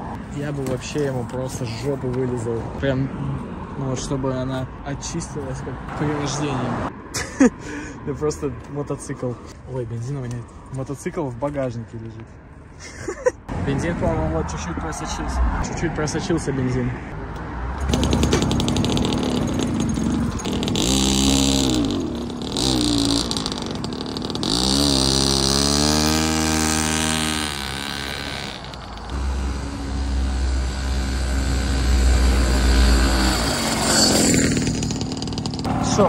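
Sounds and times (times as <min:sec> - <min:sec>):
mini motorcycle engine revving: 0:17.8 - 0:35.9.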